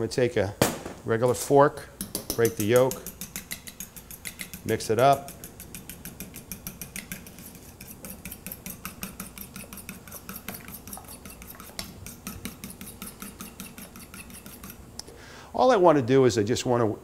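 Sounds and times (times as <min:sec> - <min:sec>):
fork clinking against metal bowl: 0:02.0 - 0:14.8.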